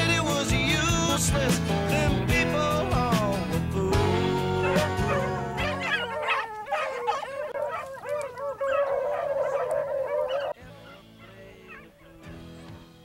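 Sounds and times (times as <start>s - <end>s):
dogs baying and howling: 4.3s - 12.4s.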